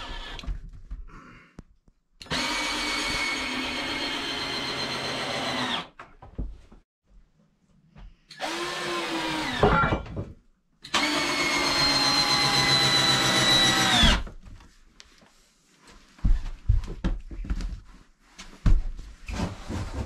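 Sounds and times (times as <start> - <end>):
cordless drill motor whine: 11.0 - 14.2.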